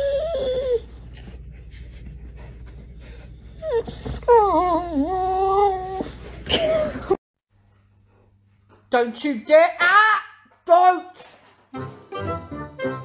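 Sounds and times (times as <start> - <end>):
dog whining: 0.0 - 1.3, 3.5 - 7.2.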